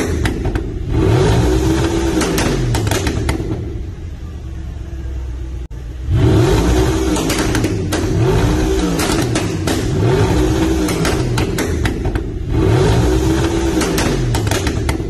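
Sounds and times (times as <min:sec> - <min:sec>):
car engine revving: 0:00.0 - 0:04.3, 0:05.4 - 0:15.0
exhaust pops and crackles: 0:07.1 - 0:12.5, 0:13.4 - 0:15.0.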